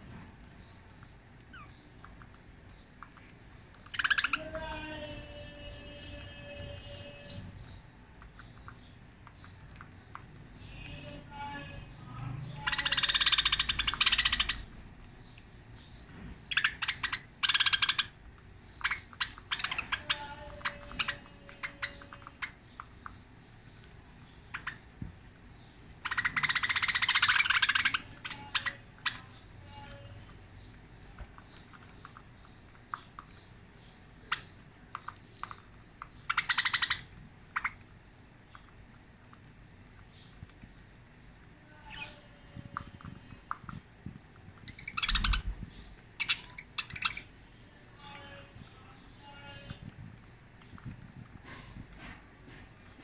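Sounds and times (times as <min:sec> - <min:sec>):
birds pecking seed clicks: 0:00.0 - 0:53.0
budgerigars chattering: 0:03.9 - 0:04.7, 0:12.6 - 0:14.7, 0:16.5 - 0:22.6, 0:26.0 - 0:29.8, 0:36.3 - 0:37.8, 0:44.7 - 0:47.3.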